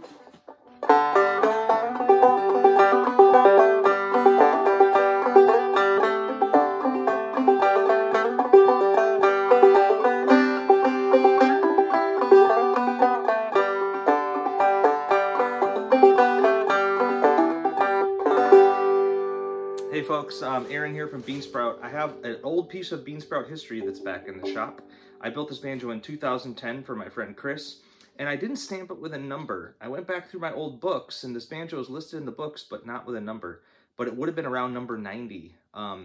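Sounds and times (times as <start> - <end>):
banjo playing plucked tune: 0.0 - 26.1.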